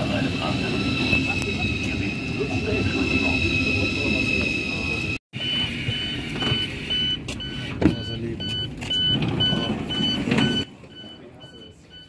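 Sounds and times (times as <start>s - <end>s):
train door warning beeps: 5.4s - 12.0s.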